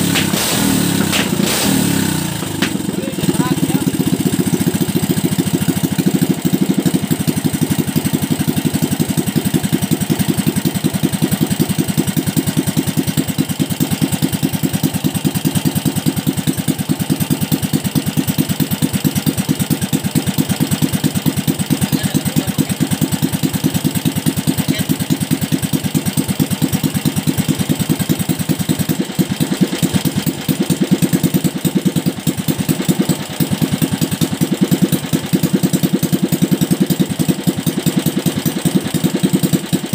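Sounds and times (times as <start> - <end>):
small engine running steadily: 0.0 - 39.9.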